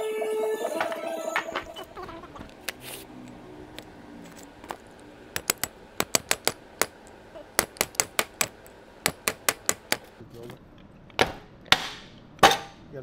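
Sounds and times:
sharp metallic taps and clicks: 4.6 - 10.2.

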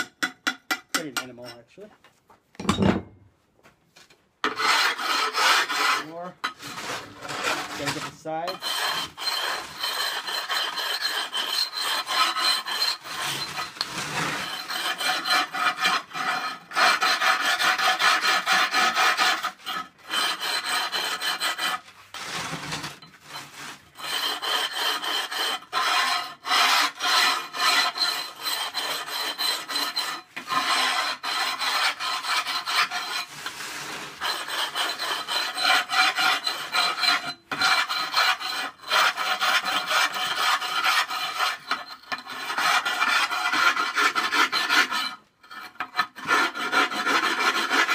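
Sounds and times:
grinding stone scraping ceramic: 4.4 - 47.9.

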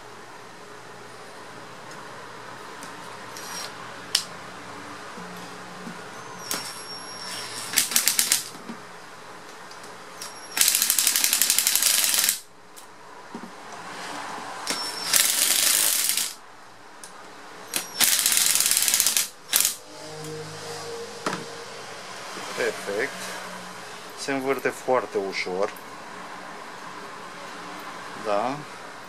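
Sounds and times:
impact driver whirring: 10.6 - 12.4, 14.7 - 16.4, 17.7 - 19.8.

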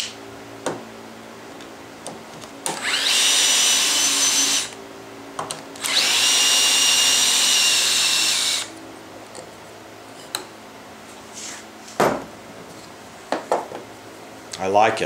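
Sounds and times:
electric drill whining: 2.7 - 4.8, 5.8 - 8.7.

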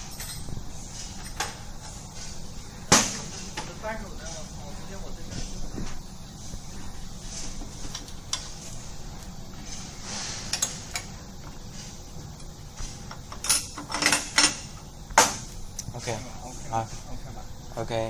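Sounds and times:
metal tools clinking on steel plate: 0.0 - 1.6.

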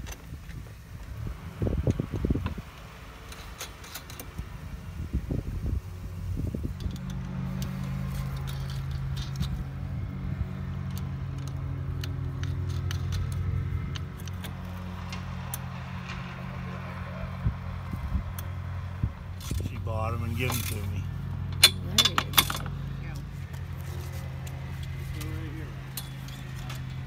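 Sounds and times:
vehicle engine running: 0.0 - 27.0
metal hardware clinking: 10.8 - 16.7, 19.4 - 27.0.

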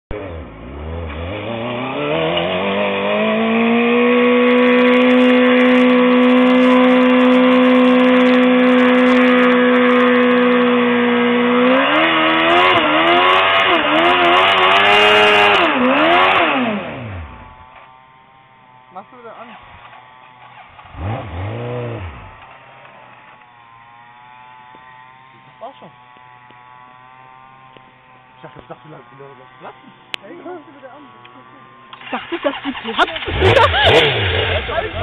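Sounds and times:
motorcycle engine revving: 0.1 - 35.0
tyre spinning on asphalt: 31.9 - 35.0.

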